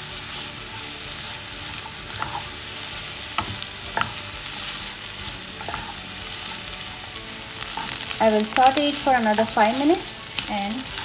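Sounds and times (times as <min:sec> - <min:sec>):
onions sizzling in oil: 0:00.0 - 0:11.0
spatula knocking on pan: 0:03.3 - 0:04.3.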